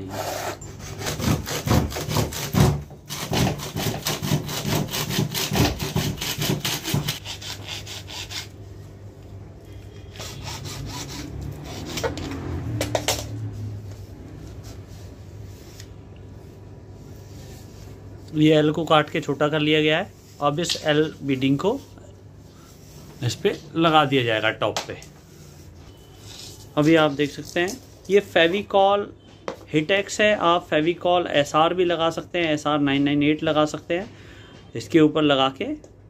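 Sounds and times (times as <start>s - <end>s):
hacksaw sawing: 0.0s - 8.5s, 10.1s - 12.5s.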